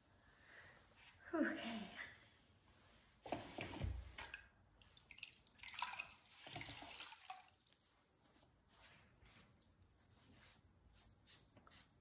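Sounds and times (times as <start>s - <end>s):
water dripping and splashing: 4.2s - 7.8s.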